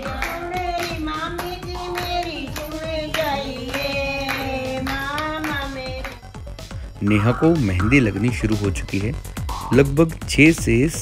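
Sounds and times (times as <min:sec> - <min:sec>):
women singing together: 0:00.0 - 0:06.2
rhythmic hand claps: 0:00.0 - 0:08.0.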